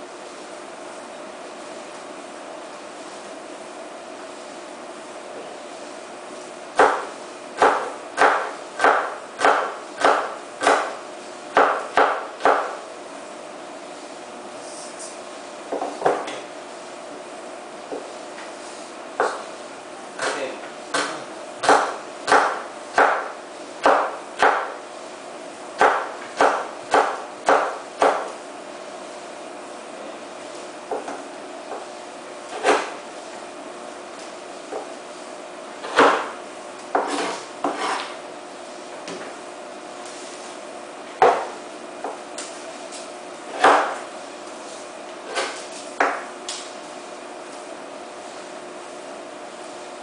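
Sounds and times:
knife chopping on wooden board: 6.7 - 12.8, 15.7 - 16.4, 19.2 - 19.5, 20.2 - 24.8, 25.8 - 28.4, 30.9 - 31.9, 32.5 - 33.0, 35.8 - 38.2, 41.1 - 42.6, 43.5 - 44.1, 45.2 - 46.7.

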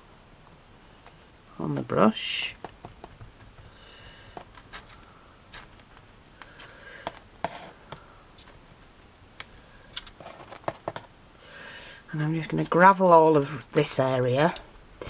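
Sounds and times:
handling rustle: 2.6 - 9.0, 9.9 - 11.2.

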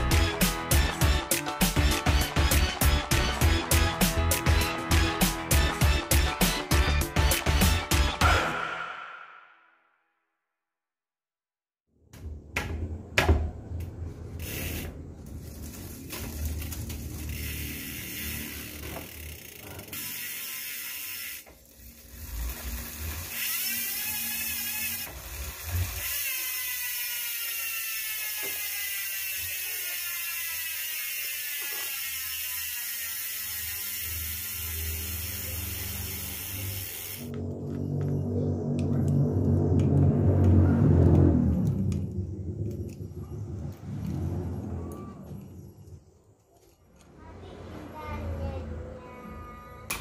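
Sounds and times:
bicycle chain clatter: 14.2 - 37.3
freehub ratcheting buzz: 14.3 - 37.6.

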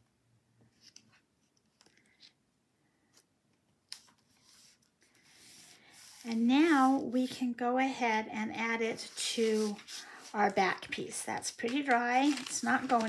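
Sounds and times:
rustling of cardstock: 9.0 - 13.0.

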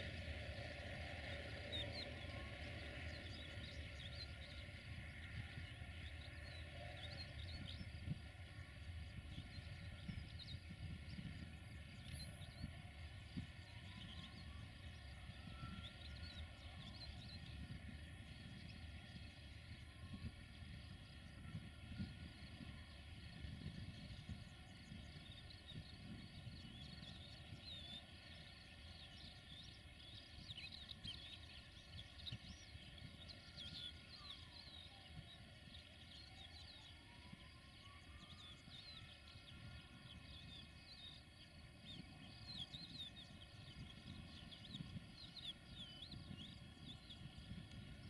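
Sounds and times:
distant freight train rumble: 0.0 - 48.0
small birds chirping: 38.2 - 48.0.

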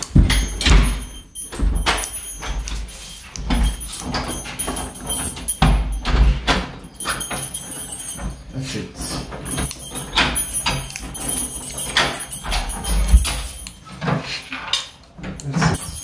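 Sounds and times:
door lock clicks and rattles: 0.0 - 14.1.

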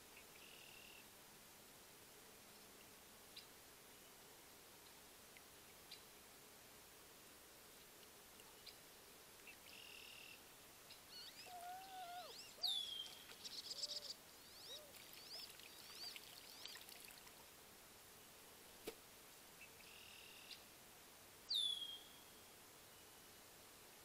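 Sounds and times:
whistled bird calls: 11.1 - 16.8, 21.5 - 22.4
faint water splashing: 11.1 - 17.7.

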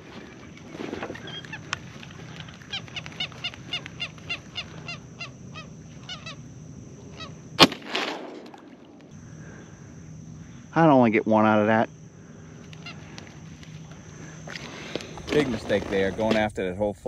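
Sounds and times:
ducks quacking: 0.0 - 7.4, 12.4 - 13.4
loud shotgun blast: 7.6 - 8.6.

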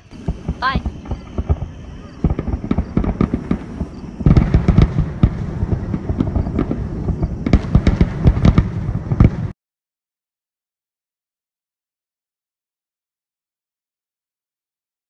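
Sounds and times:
fireworks bangs and crackles: 0.0 - 9.6
heavy firework booms: 0.0 - 9.6.

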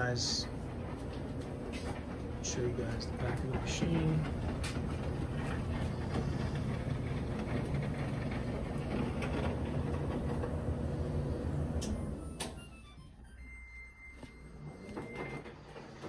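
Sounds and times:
dryer drum rumbling whir: 0.0 - 16.0
dryer switching off click: 4.3 - 12.8.

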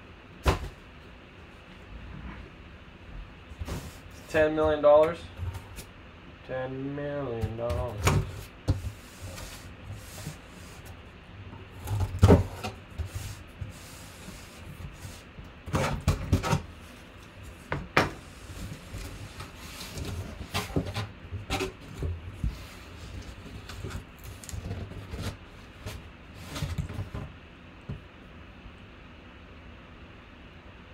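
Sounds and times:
cardboard rubbing and scraping: 3.5 - 4.6, 7.4 - 11.0, 11.6 - 27.4.

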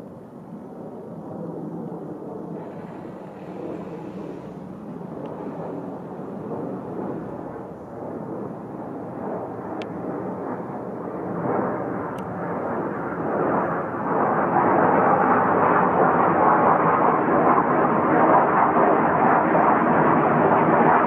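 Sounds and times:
fighter jet rumble: 2.0 - 10.7.

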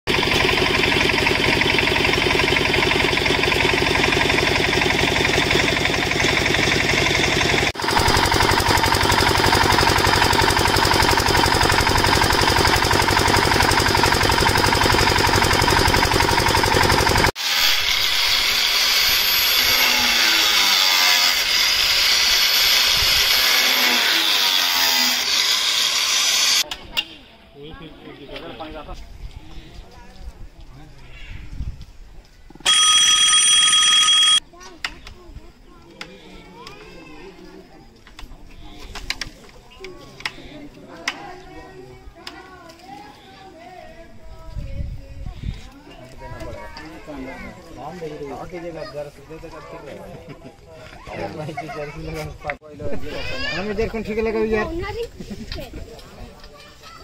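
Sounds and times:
small engine driving water pump: 0.1 - 26.6
angle grinder cutting plastic pipe: 4.3 - 26.6.

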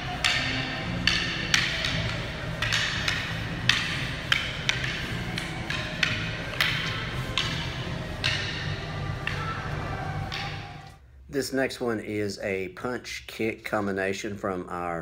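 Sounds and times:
practice sticks clacking: 0.0 - 11.0.

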